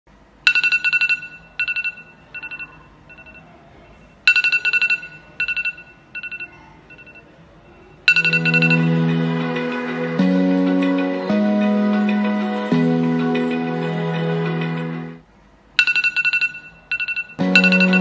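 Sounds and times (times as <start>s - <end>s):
smartphone ringing: 0.5s - 3.5s, 4.3s - 10.0s, 15.8s - 18.0s
music: 8.1s - 15.2s, 17.4s - 18.0s.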